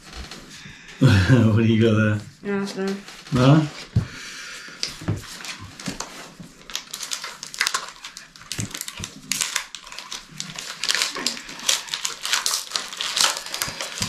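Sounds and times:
foil wrappers crinkling: 4.7s - 14.0s.

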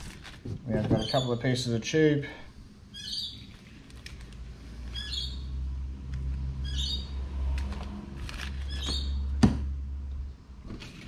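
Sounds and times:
bird chirping: 0.9s - 1.5s, 2.9s - 3.8s, 4.9s - 5.6s, 6.6s - 7.2s, 8.6s - 9.4s.

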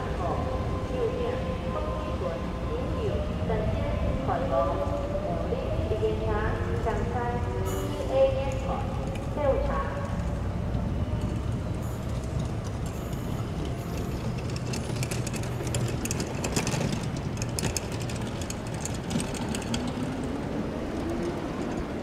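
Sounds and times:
train rumbling: 0.0s - 22.0s
wheels clicking and rattling: 6.7s - 22.0s.

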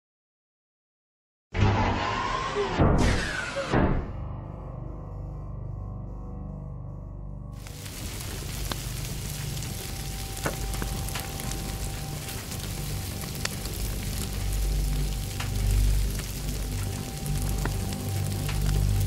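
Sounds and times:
low rumble: 4.0s - 19.0s
fire crackling and popping: 7.6s - 19.0s.

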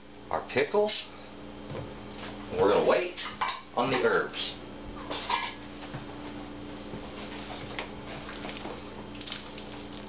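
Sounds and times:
wet squelches of potato salad: 7.2s - 10.0s.

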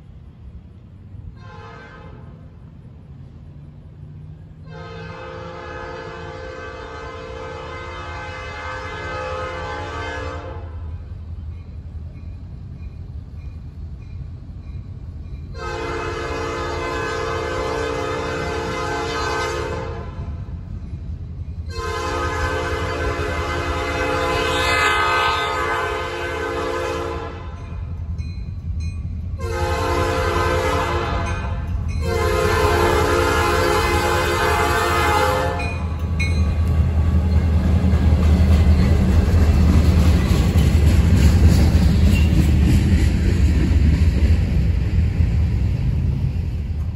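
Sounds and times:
train rumbling: 0.0s - 46.9s
locomotive air horn blasts: 1.4s - 2.4s, 4.6s - 10.9s, 15.6s - 20.4s, 21.7s - 27.6s, 29.4s - 35.9s.

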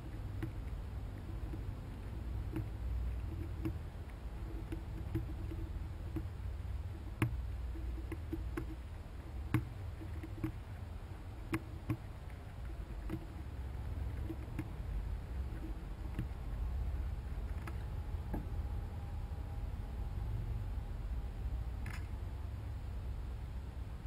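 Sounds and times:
chipmunks gnawing corn kernels: 0.0s - 18.9s
steady low rumble: 0.0s - 24.0s.

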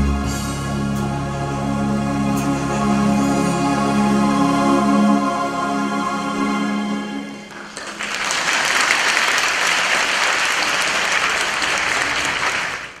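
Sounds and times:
audience applauding: 7.5s - 13.0s.

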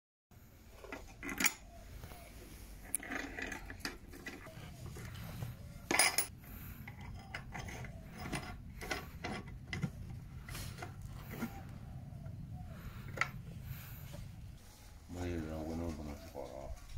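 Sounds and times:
steel clamps scraping: 2.8s - 9.9s
metallic clinks: 5.9s - 6.3s.

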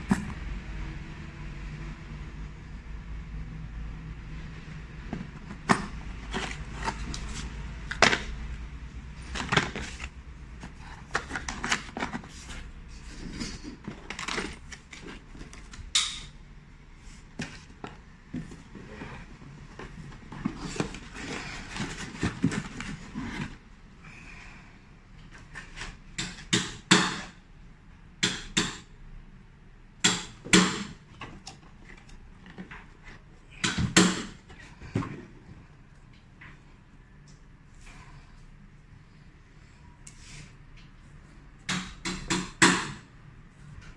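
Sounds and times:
plastic wrapping rustling: 9.1s - 15.8s.

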